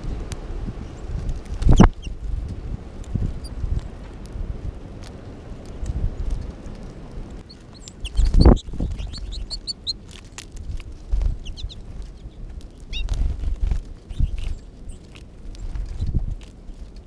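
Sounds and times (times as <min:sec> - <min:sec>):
wind rumble on microphone: 0:00.0 - 0:17.0
finches chirping: 0:00.8 - 0:02.2, 0:03.3 - 0:03.6, 0:07.4 - 0:10.2, 0:11.3 - 0:13.2, 0:14.0 - 0:15.8.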